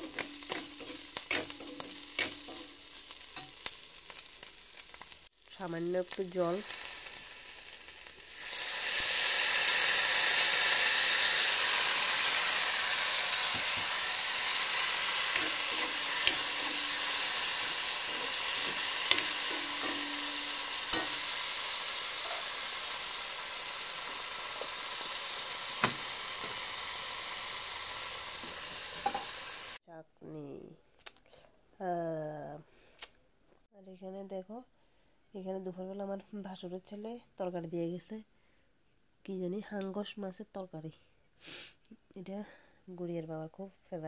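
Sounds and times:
food sizzling in a wok: 0.0 - 29.8
metal spoon clicking on pan: 0.1 - 2.7, 15.3 - 17.7, 18.3 - 21.3.

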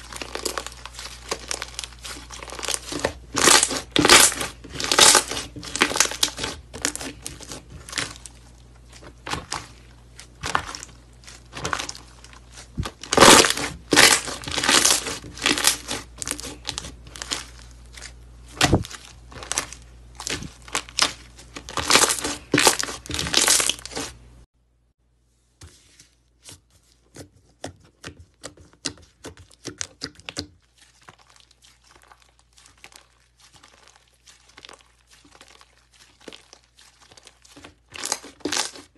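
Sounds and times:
slime crackling and popping: 0.0 - 24.2, 29.5 - 38.9.

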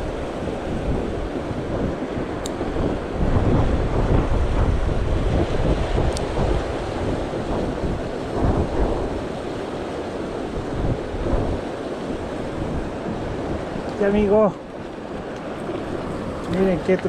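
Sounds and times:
wind buffeting microphone: 0.0 - 17.0
stream rushing over rocks: 11.7 - 17.0.

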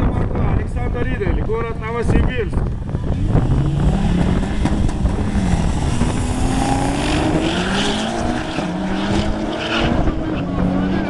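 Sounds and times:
drag race cars accelerating: 3.0 - 11.0.

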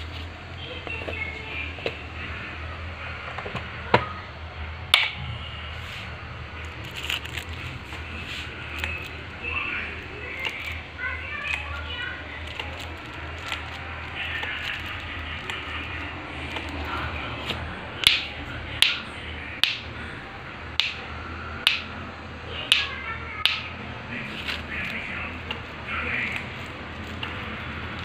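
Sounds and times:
sharp hand claps: 18.1 - 19.0, 19.6 - 19.9, 20.8 - 21.0, 21.7 - 21.9, 22.7 - 23.7.

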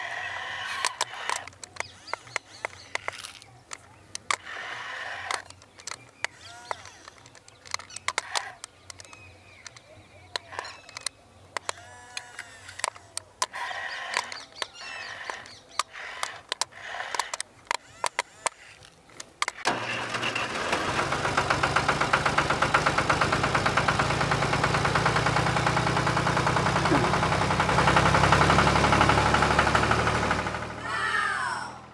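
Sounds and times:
birds chirping: 0.0 - 19.7, 24.2 - 28.4
sharp irregular clicks: 0.0 - 20.2, 20.8 - 30.8
engine running with fast pulse: 19.5 - 31.9.

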